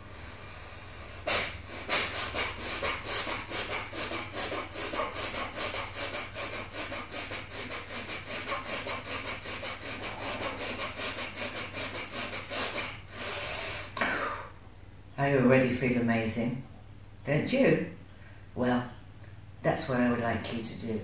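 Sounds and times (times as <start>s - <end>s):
rapid forceful nasal exhales: 0.0s - 14.6s.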